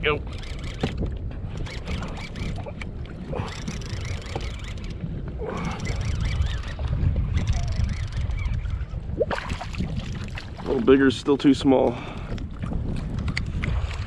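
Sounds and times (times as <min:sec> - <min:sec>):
wind buffeting microphone: 0:00.0 - 0:14.0
water slapping against kayak hull: 0:09.2 - 0:11.0.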